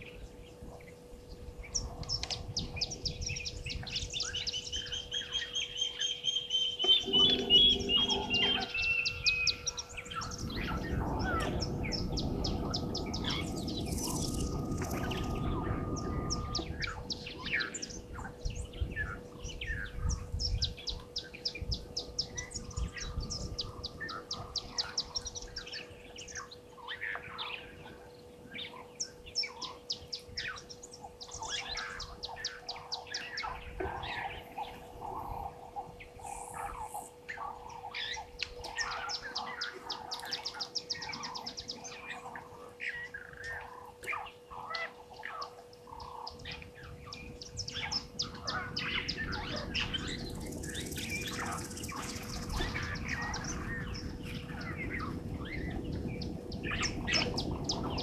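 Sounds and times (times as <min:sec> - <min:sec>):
faint steady hum: 0:00.0 - 0:58.0
wild birds chirping and trilling: 0:00.0 - 0:58.0
low rumbling noise: 0:06.8 - 0:29.4, 0:30.4 - 0:58.0.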